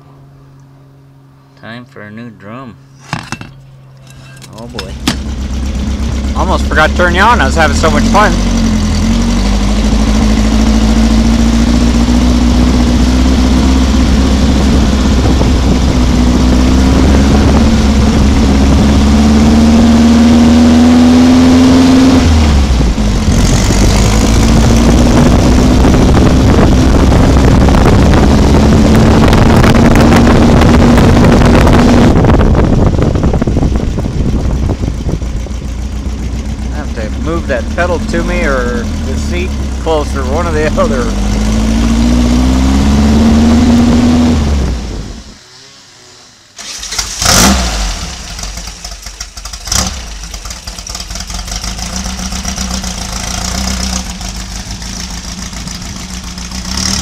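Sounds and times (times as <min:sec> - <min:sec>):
road noise: 0:00.0 - 0:57.0
buggy engine under throttle: 0:03.0 - 0:57.0
wind noise: 0:11.3 - 0:21.6, 0:22.2 - 0:35.9, 0:41.2 - 0:45.4.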